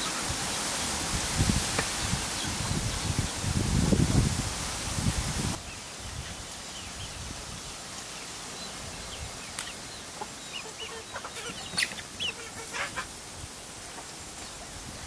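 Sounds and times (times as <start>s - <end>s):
chickens clucking: 9.0s - 15.0s.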